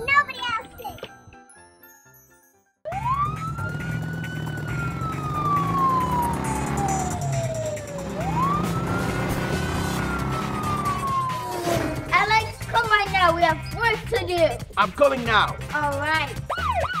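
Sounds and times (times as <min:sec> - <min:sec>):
police siren wailing: 0:02.9 - 0:12.1, 0:16.5 - 0:17.0
vehicle engine running: 0:02.9 - 0:14.6.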